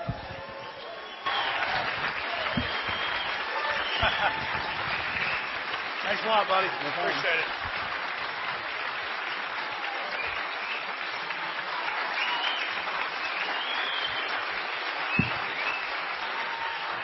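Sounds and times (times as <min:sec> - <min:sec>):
audience applauding: 0:00.0 - 0:17.0
thump: 0:15.2 - 0:15.6.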